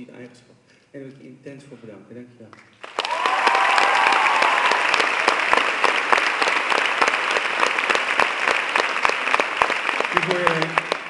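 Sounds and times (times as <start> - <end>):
audience applauding loudly: 2.8 - 11.0.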